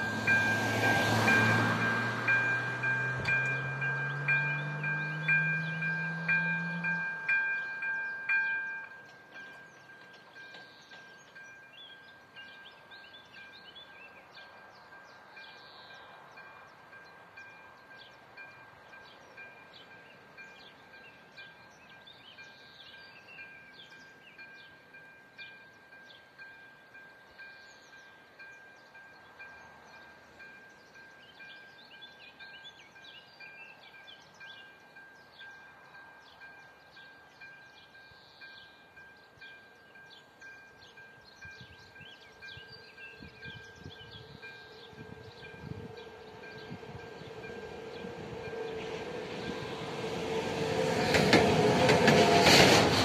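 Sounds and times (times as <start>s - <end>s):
electronic crossing bell ringing: 0.0s - 9.6s.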